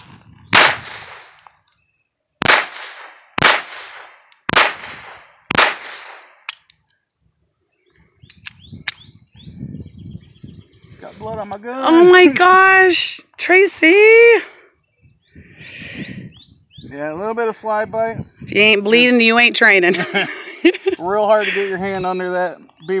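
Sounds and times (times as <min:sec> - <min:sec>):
pistol shots: 0:00.5 - 0:01.4, 0:02.4 - 0:06.7.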